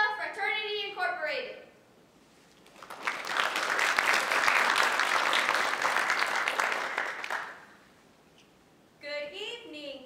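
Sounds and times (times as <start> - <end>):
audience applauding: 2.6 - 7.7.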